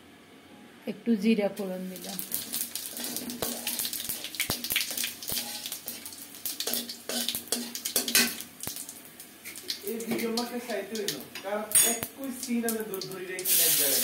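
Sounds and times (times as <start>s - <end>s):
sharp crackles and pops: 1.9s - 11.4s
seeds sizzling in hot oil: 1.9s - 14.0s.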